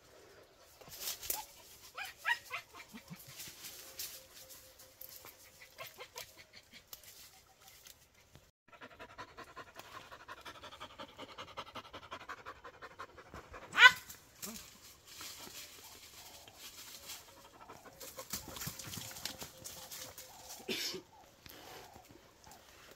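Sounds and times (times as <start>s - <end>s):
dog panting: 8.7s - 13.7s.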